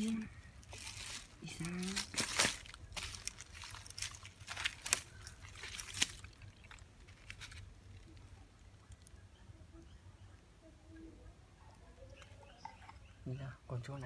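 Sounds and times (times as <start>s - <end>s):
plastic crackles and clicks: 0.0s - 9.2s.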